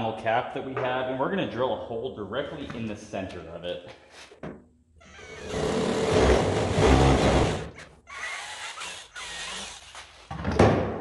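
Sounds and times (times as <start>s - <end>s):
cordless drill boring plastic: 5.1s - 10.2s.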